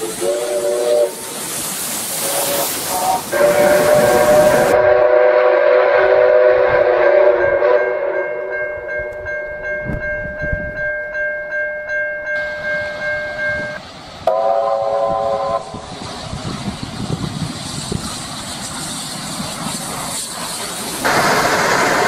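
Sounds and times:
steam locomotive chime whistle: 0:00.0 - 0:01.4, 0:02.1 - 0:15.9
train passing at speed: 0:00.0 - 0:22.0.

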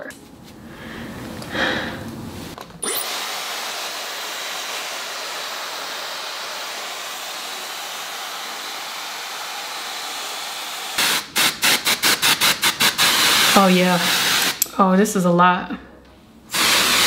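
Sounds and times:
hair dryer blowing: 0:01.2 - 0:14.6, 0:16.5 - 0:17.0
spray bottle spritzes: 0:02.8 - 0:14.6, 0:16.5 - 0:17.0.

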